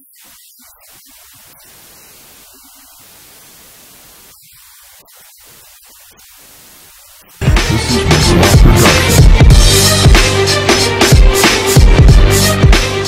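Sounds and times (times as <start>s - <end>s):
static hiss: 0.0s - 11.8s.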